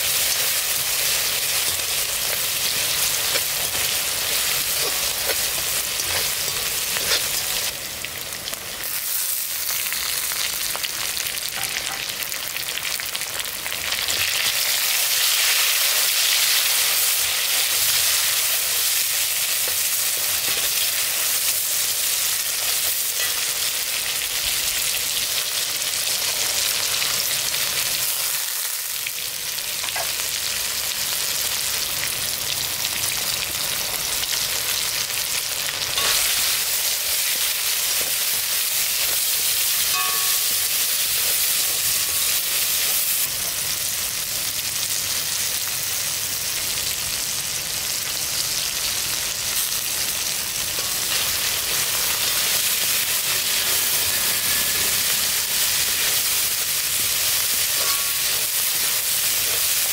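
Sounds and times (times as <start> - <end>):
vegetables sizzling in oil: 0.0 - 59.9.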